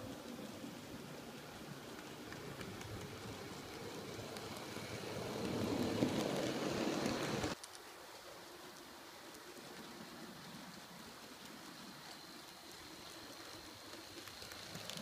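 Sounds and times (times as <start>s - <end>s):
model train wheels rumbling on rail: 0.0s - 7.8s.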